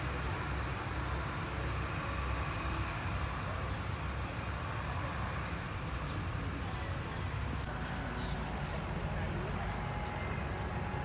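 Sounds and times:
outdoor background rumble: 0.0 - 11.0
high insect trill: 7.7 - 11.0.

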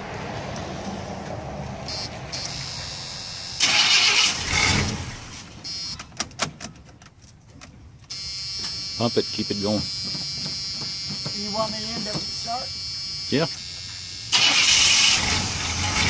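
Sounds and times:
starter cranking engine: 3.6 - 5.1, 14.3 - 16.0
engine catching and running: 13.6 - 16.0.

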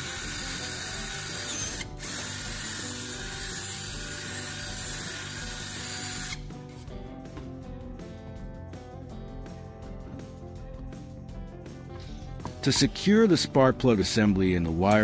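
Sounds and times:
power drill boring plastic pipe: 0.0 - 6.4
background music: 0.0 - 15.0.

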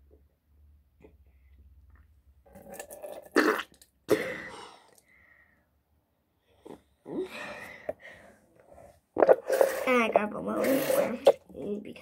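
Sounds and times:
person spitting into sink: 2.5 - 4.5, 9.2 - 11.4.

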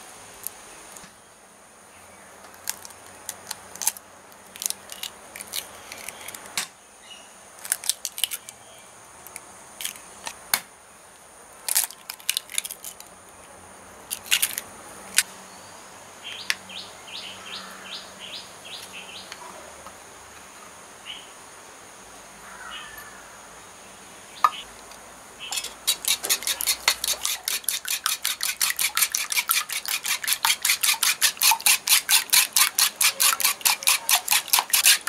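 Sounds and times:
eggshells cracking: 2.6 - 6.5, 7.6 - 8.4, 11.7 - 13.1, 14.1 - 14.6
high bird chirps: 24.4 - 24.7.

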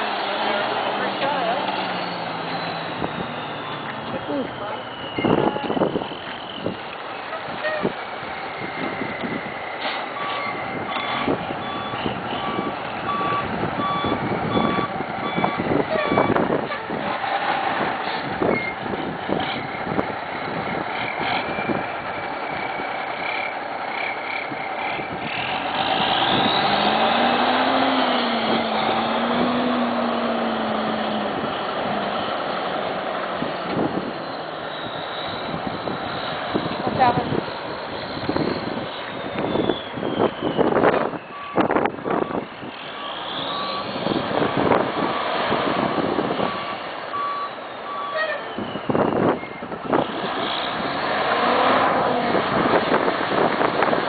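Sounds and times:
diesel truck engine running: 0.0 - 54.0
reverse alarm beeping: 2.6 - 6.7, 10.2 - 16.4, 39.2 - 44.0, 45.9 - 49.6.

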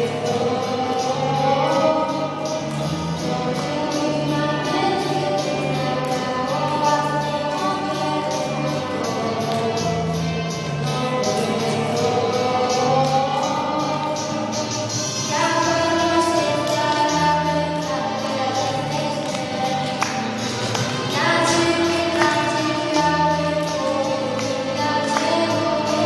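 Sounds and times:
girl singing into a microphone: 0.0 - 26.0.

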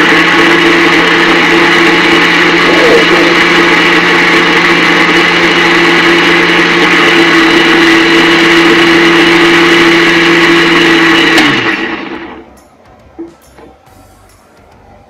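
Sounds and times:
mixer grinder motor whining: 0.0 - 12.5.

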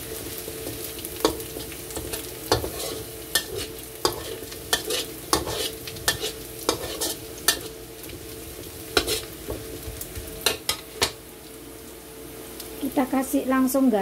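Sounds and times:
soft sizzle of frying: 0.0 - 14.0
metal spatula scraping a wok: 1.2 - 7.8, 8.9 - 9.6.

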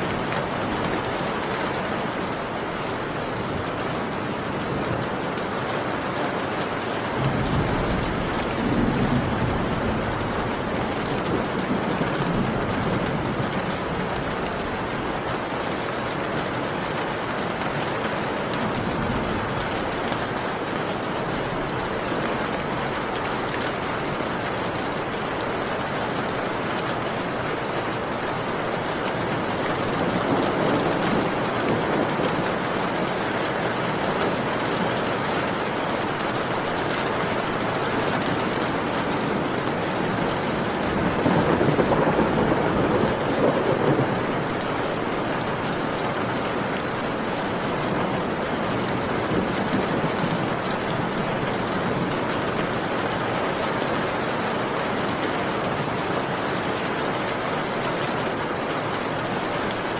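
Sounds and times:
rain falling: 0.0 - 59.9
thunder rolling: 7.2 - 13.6, 37.6 - 44.6.

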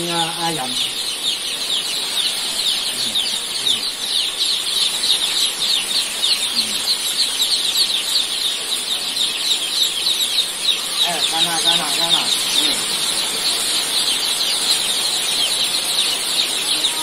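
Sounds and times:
chicks peeping: 0.0 - 17.0.

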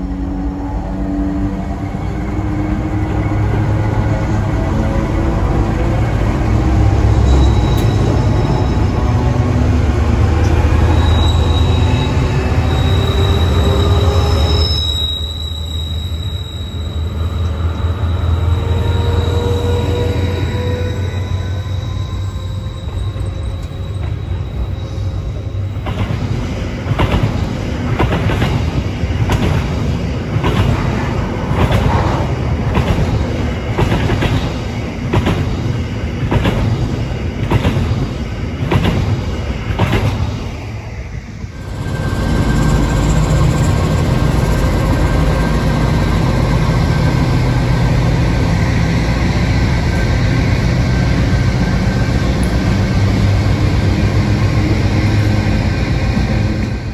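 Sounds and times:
diesel locomotive engine hum: 0.0 - 56.9
train wheels clicking over rail joints: 25.7 - 40.4.

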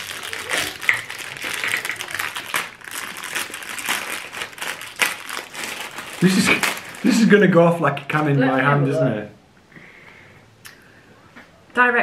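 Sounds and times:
plastic wrapper crinkling: 0.0 - 7.8.

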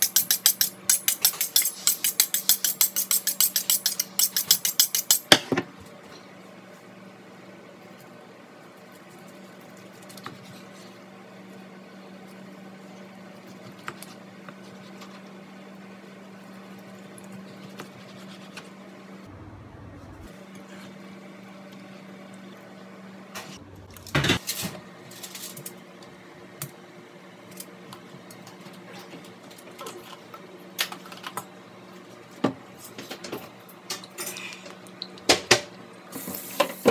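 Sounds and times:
steady low hum: 0.0 - 28.8.

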